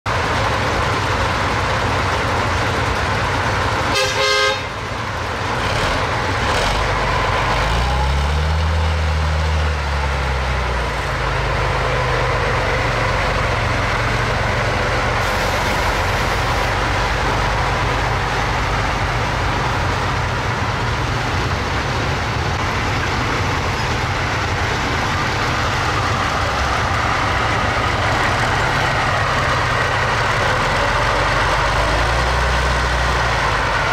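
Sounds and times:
truck diesel engine running: 0:00.1 - 0:33.9
short horn toot: 0:03.9 - 0:04.8.

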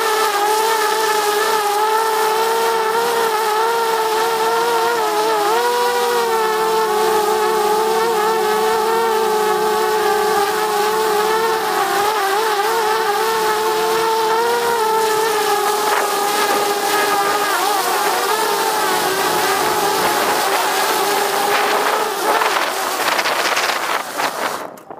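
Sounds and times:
drone propellers whining: 0:00.0 - 0:24.9.

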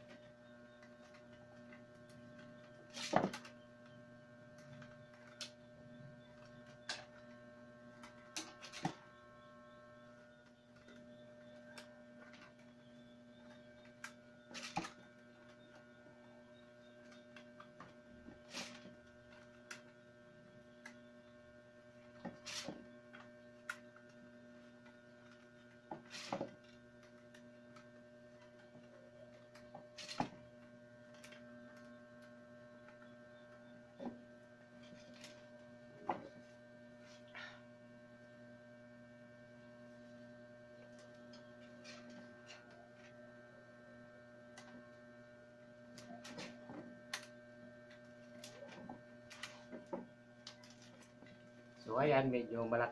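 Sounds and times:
steady electrical hum: 0:00.0 - 0:52.9
wicker clicking and rustling: 0:00.8 - 0:03.6, 0:22.2 - 0:30.4, 0:34.8 - 0:35.6, 0:45.9 - 0:51.8.

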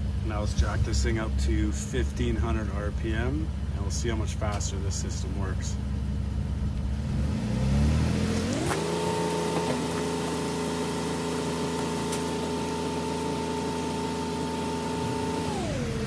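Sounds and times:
car engine revving to fast idle: 0:05.5 - 0:16.0.

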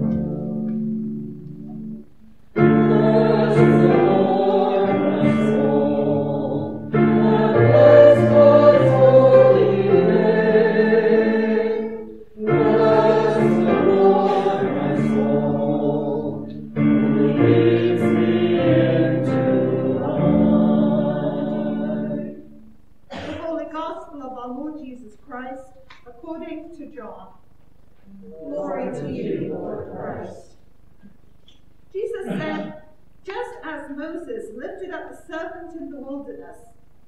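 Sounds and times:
choir singing a hymn: 0:02.6 - 0:23.2, 0:28.3 - 0:30.5, 0:32.1 - 0:32.8.

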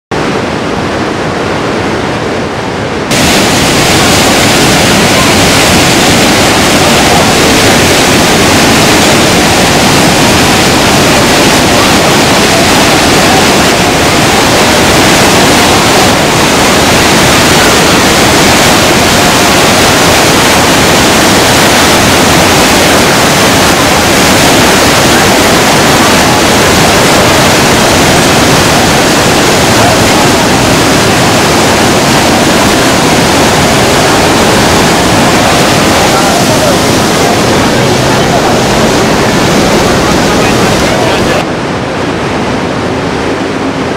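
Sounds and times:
waterfall rushing: 0:00.2 - 0:43.9.

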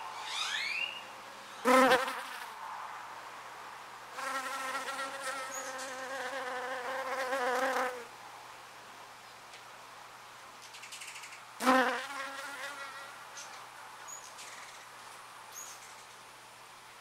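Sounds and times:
flying insect buzzing: 0:01.6 - 0:02.6, 0:04.2 - 0:08.1, 0:11.6 - 0:13.2.

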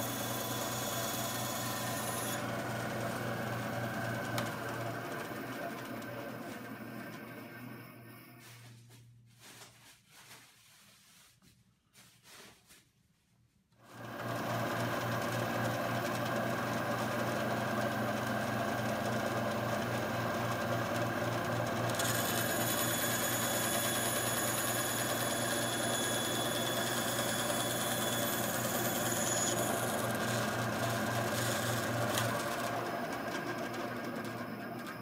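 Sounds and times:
band saw cutting plywood: 0:00.0 - 0:04.8, 0:21.9 - 0:32.7.

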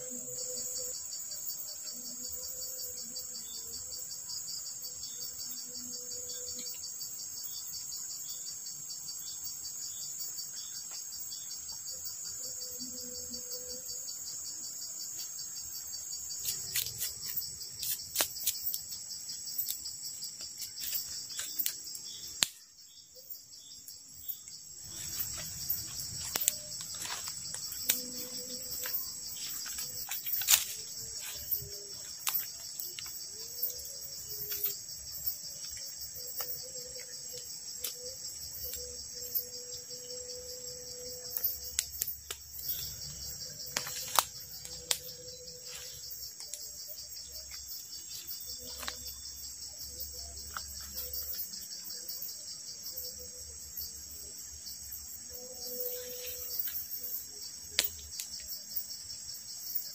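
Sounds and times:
high-pitched insect chorus: 0:00.0 - 0:59.9
campfire crackling: 0:24.7 - 0:31.4, 0:43.6 - 0:45.0.

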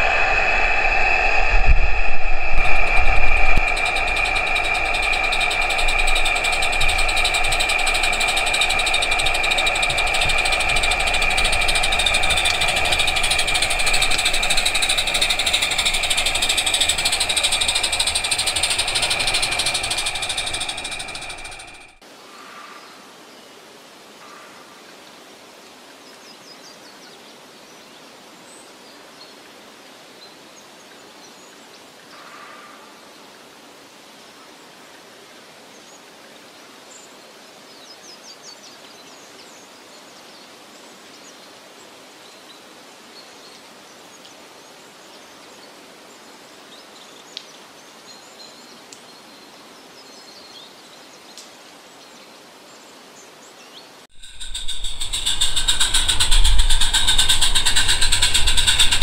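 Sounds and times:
drone rotors whining: 0:00.0 - 0:22.0, 0:54.1 - 0:59.0
faint bird chirps: 0:02.6 - 0:23.0
outdoor background hiss: 0:02.6 - 0:55.3.

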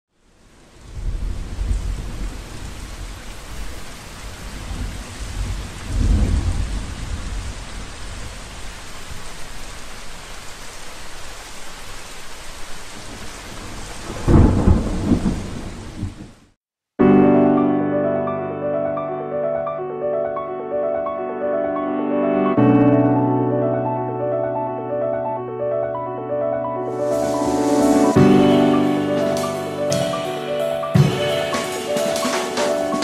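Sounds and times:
heavy rain: 0:00.1 - 0:16.6, 0:26.9 - 0:33.0
thunder rumbling: 0:00.8 - 0:09.2, 0:13.1 - 0:16.4.

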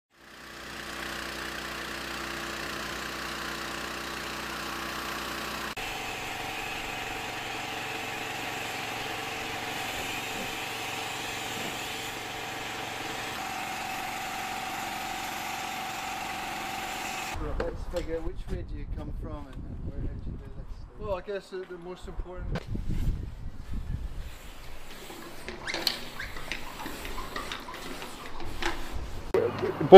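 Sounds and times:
pressure washer spray hiss: 0:05.8 - 0:17.3
low machine hum: 0:05.8 - 0:17.4.

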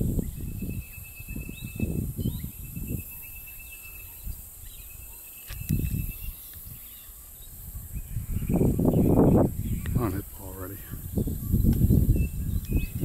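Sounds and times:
insects buzzing: 0:00.0 - 0:13.0
thin whistling call: 0:00.2 - 0:10.1.

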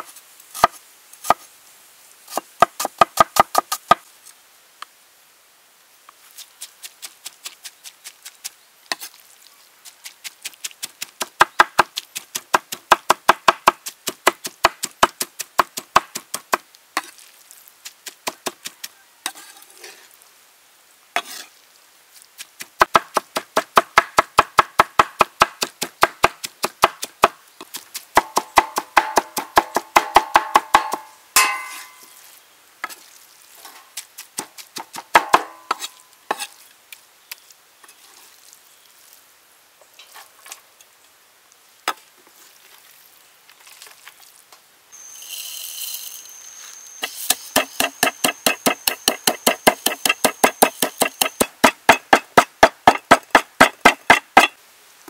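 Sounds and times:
pestle pounding in mortar: 0:28.1 - 0:31.8, 0:34.5 - 0:35.7, 0:47.1 - 0:54.6
cleaver chopping on wooden board: 0:28.2 - 0:32.0, 0:34.8 - 0:35.9, 0:47.3 - 0:54.5.

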